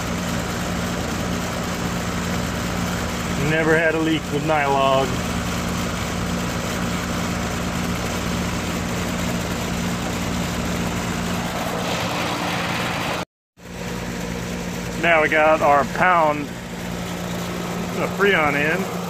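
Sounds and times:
heat pump compressor and fan hum: 0.0 - 19.0.

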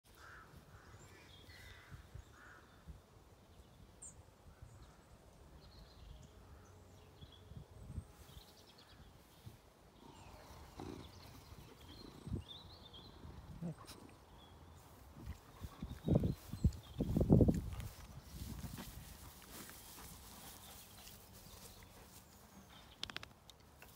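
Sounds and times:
distant birds calling: 9.9 - 23.4
wind rumbling on microphone: 15.1 - 19.6.

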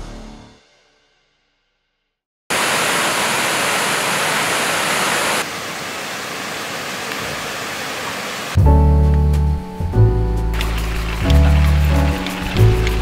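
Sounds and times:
waterfall rushing: 2.5 - 8.6, 10.6 - 13.0.

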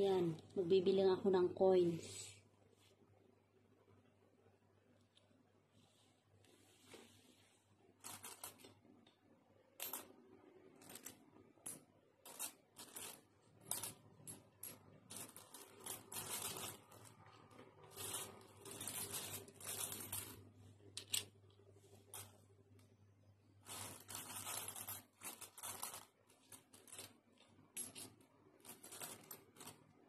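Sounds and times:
coins clinking and sliding: 8.0 - 8.8, 9.8 - 10.1, 10.8 - 21.3, 22.1 - 22.4, 23.6 - 30.0.

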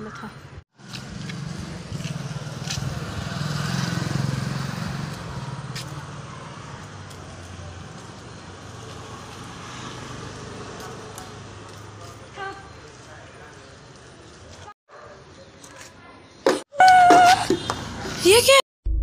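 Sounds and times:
vehicle engine humming: 0.8 - 12.3.

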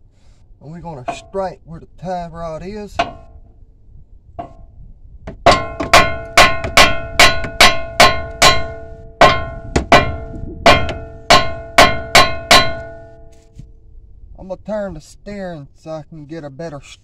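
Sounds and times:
hammer clanging on steel: 1.0 - 1.4, 2.9 - 3.4, 4.4 - 4.7, 5.3 - 13.4.

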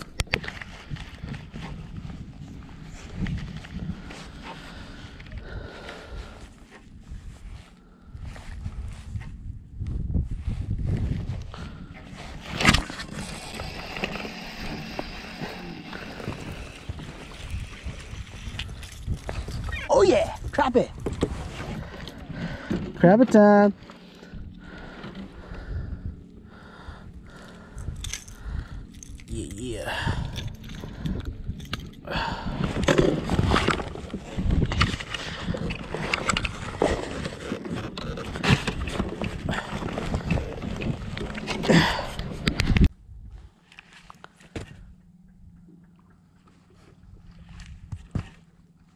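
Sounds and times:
low steady rumble: 0.0 - 48.9
hands rustling and clicking tackle: 27.8 - 29.6.

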